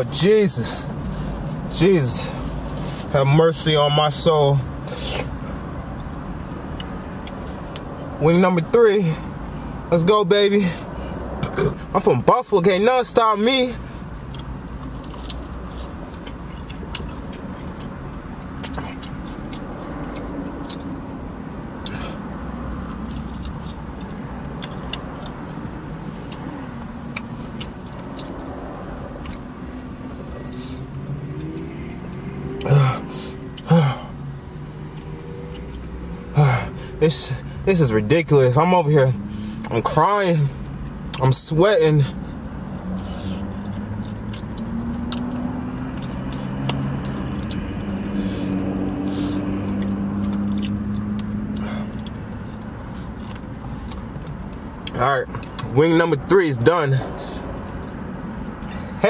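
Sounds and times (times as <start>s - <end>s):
low rumble of car cabin: 0.0s - 59.0s
lip smacks and mouth clicks: 5.1s - 8.1s, 14.1s - 29.6s, 30.2s - 32.7s, 34.7s - 36.1s, 42.7s - 55.7s, 57.4s - 58.8s.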